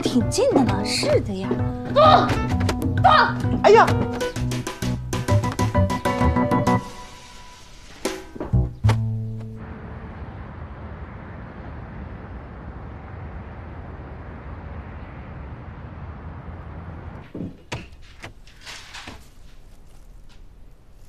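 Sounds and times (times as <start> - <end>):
city traffic hum: 0.0 - 21.0
front door opening clicks: 17.2 - 19.2.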